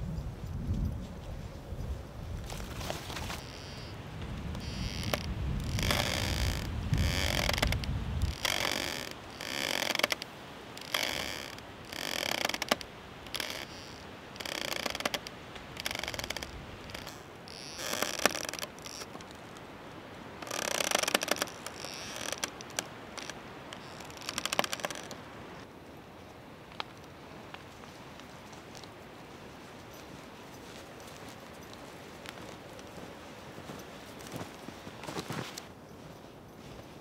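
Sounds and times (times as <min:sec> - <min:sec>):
footsteps crunching in snow: 0:00.9 - 0:09.9, 0:27.2 - 0:37.0.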